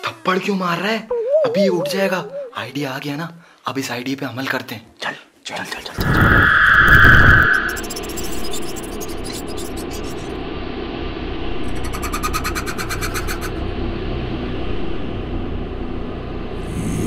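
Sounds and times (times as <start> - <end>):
crickets trilling: 6.0 - 10.3.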